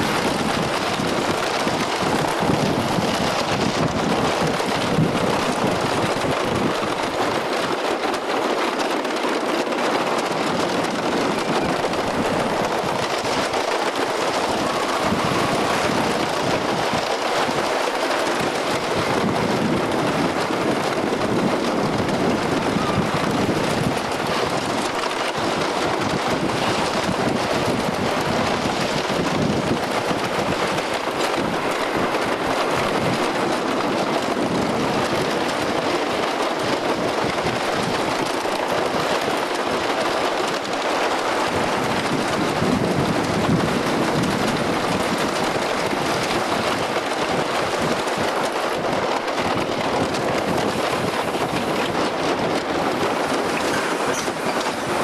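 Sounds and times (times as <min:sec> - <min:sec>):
roller coaster wheels rushing: 0:00.0 - 0:55.0
wind buffeting microphone: 0:00.0 - 0:55.0.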